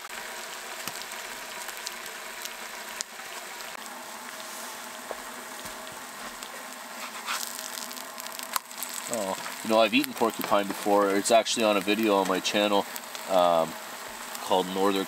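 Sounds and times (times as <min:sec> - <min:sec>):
food sizzling in a frying pan: 0:00.0 - 0:15.0
small pops: 0:05.1 - 0:13.4.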